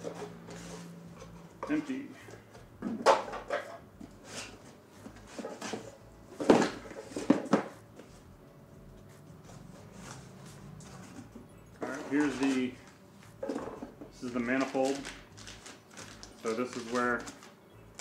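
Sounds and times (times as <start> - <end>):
cardboard boxes scraping and rustling: 4.1 - 8.3, 9.4 - 13.4.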